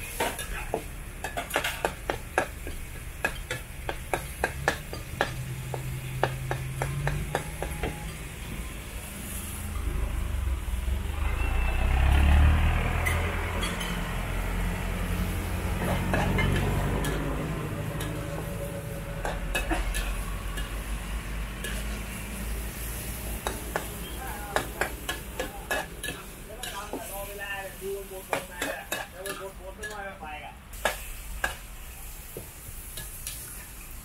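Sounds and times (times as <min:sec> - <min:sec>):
food sizzling in a wok: 0:00.0 - 0:34.0
low rumble: 0:09.4 - 0:15.0
metal spatula scraping a wok: 0:18.0 - 0:20.9, 0:21.6 - 0:22.2.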